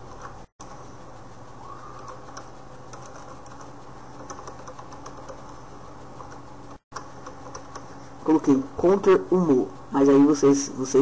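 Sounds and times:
steady low hum: 0:00.0 - 0:11.0
keyboard typing clicks: 0:02.0 - 0:05.6, 0:06.2 - 0:07.9.

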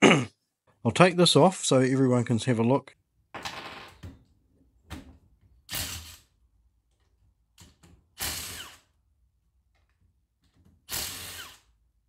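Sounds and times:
cordless drill bursts: 0:05.7 - 0:06.2, 0:08.2 - 0:08.9, 0:10.9 - 0:11.7.

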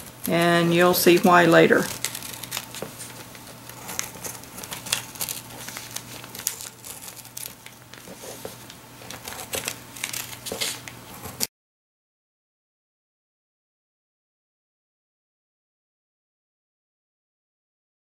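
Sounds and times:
paper crinkling: 0:00.0 - 0:11.5.

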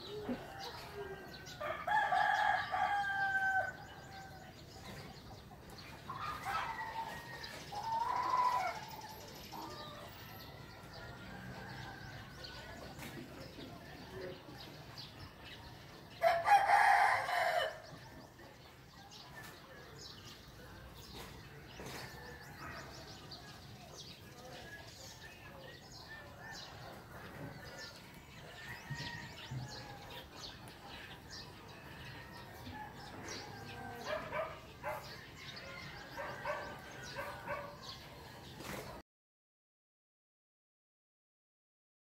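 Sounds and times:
small birds chirping: 0:00.0 - 0:39.0
rooster crowing: 0:00.4 - 0:04.5, 0:16.2 - 0:17.8
dog barking: 0:33.9 - 0:35.2, 0:36.2 - 0:38.0.

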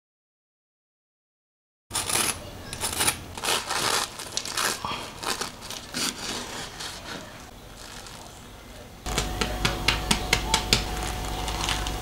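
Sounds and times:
bread knife sawing crust: 0:01.9 - 0:04.2, 0:05.9 - 0:07.3.

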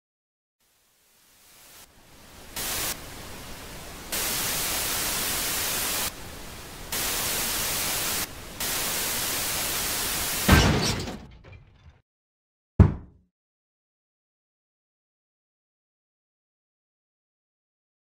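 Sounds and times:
television static hiss: 0:00.6 - 0:10.5.

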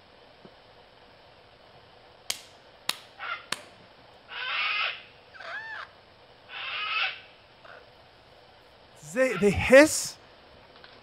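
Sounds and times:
animal cry rising and falling: 0:04.3 - 0:05.9.

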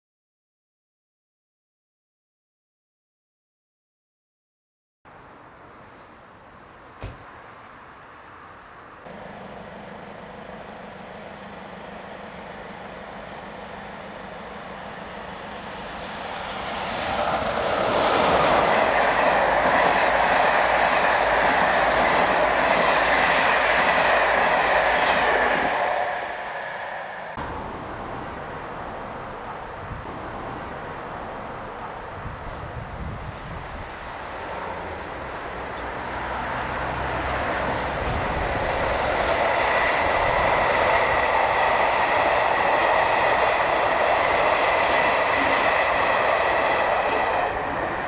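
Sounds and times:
train passing at speed: 0:05.1 - 0:48.0
rhythmic clatter of train wheels: 0:09.0 - 0:48.0.

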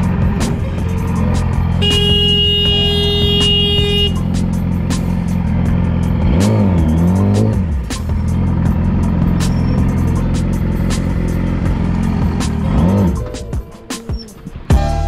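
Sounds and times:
motorcycle engine idling and revving: 0:00.0 - 0:15.0
horn: 0:01.8 - 0:04.4.

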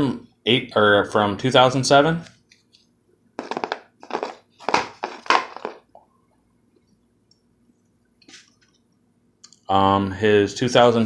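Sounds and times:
plastic card holders crinkling: 0:03.4 - 0:05.8.

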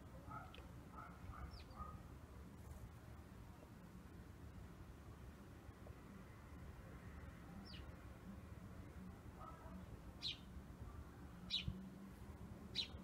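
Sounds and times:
bird chirping: 0:01.4 - 0:01.9, 0:10.2 - 0:10.5, 0:11.4 - 0:11.8, 0:12.7 - 0:13.0.

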